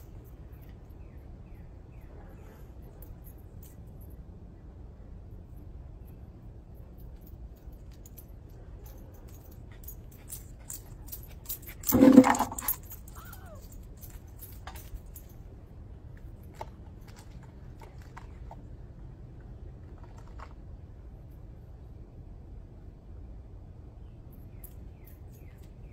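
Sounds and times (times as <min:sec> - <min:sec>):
metal jingling and clinking: 0:02.5 - 0:04.2, 0:06.7 - 0:15.6.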